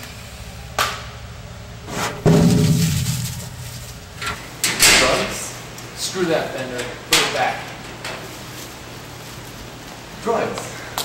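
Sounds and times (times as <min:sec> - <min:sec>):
metal locker banging: 0:00.0 - 0:05.2.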